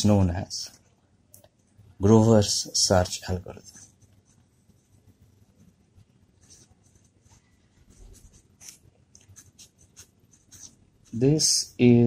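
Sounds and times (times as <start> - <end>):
pen scratching on paper: 3.6 - 11.2.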